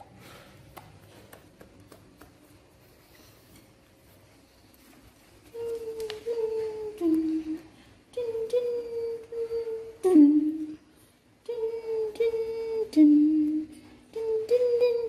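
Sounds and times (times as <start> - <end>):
person humming a slow tune: 5.5 - 10.8, 11.4 - 15.0.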